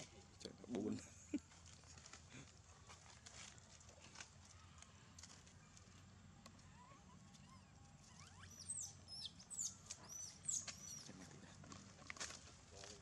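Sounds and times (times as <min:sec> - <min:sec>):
faint outdoor background: 0:00.0 - 0:13.0
high-pitched squeaky chirps: 0:06.8 - 0:11.1.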